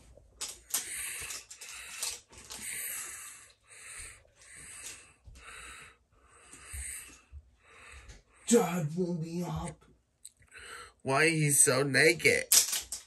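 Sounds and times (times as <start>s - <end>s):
person breathing heavily: 0.6s - 8.5s, 10.5s - 11.0s.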